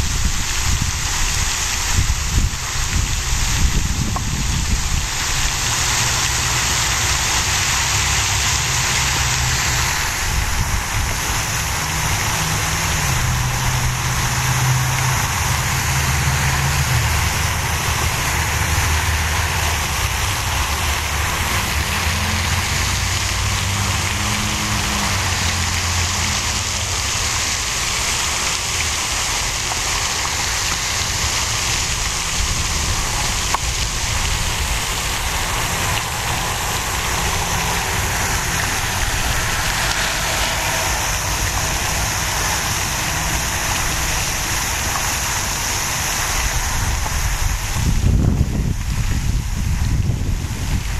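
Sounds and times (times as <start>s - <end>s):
low engine hum: 0.0s - 50.9s
steady rushing noise: 0.0s - 50.9s.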